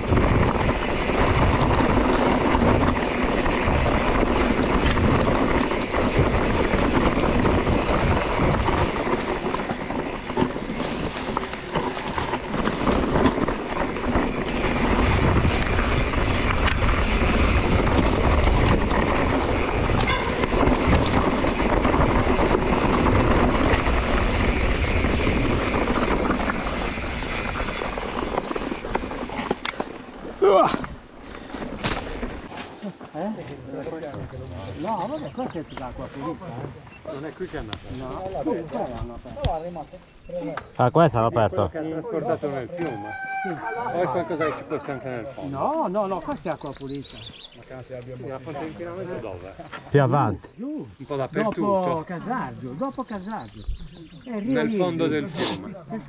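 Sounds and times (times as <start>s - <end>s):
wind buffeting microphone: 0.0s - 32.5s
mountain bike ride rumble: 0.0s - 56.0s.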